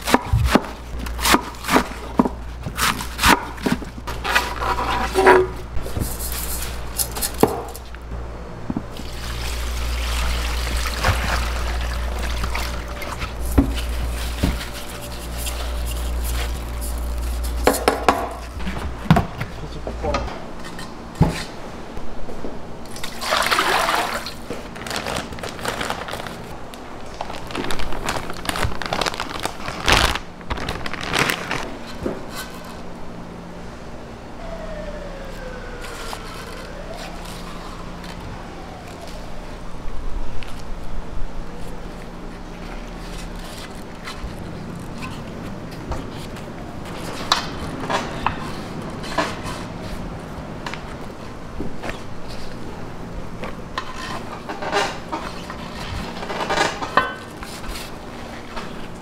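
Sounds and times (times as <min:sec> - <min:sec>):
knife cutting cabbage on board: 0:00.0 - 0:07.8
steady low hum: 0:00.0 - 0:23.2
running water: 0:09.0 - 0:13.4.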